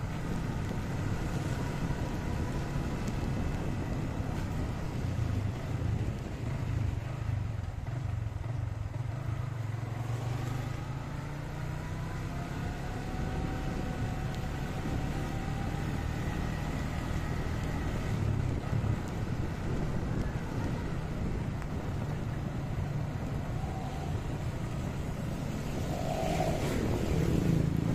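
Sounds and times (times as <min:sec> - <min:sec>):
wind noise: 0:00.0 - 0:07.4, 0:12.6 - 0:27.9
motorcycle engine running: 0:00.0 - 0:11.5
tyre noise on wet road: 0:00.0 - 0:27.9
faint rising whine: 0:23.5 - 0:27.7.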